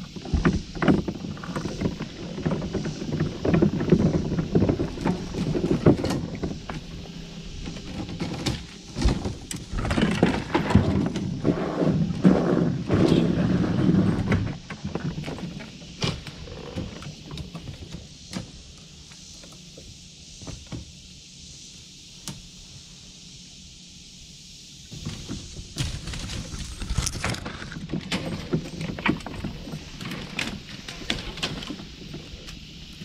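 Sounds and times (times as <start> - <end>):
soft hiss: 11.2 - 33.0
tree branches rustling: 24.9 - 33.0.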